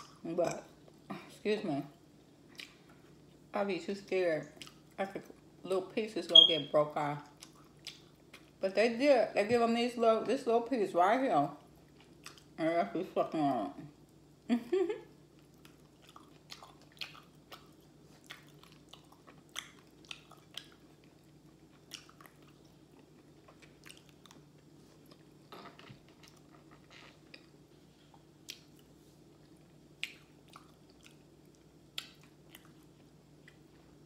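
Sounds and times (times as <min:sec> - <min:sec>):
person chewing and crunching food: 0:02.3 - 0:03.5, 0:04.4 - 0:05.6, 0:07.2 - 0:08.6, 0:11.6 - 0:12.6, 0:15.1 - 0:34.0.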